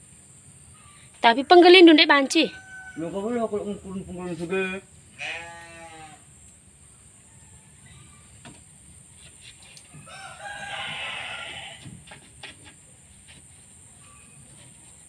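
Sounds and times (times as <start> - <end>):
rooster crowing: 2.3 - 3.6, 7.2 - 8.4, 9.9 - 12.1.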